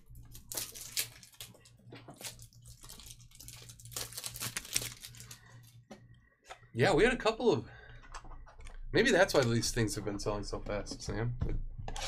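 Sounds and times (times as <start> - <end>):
plastic packaging crinkling and tearing: 0.1 - 5.7.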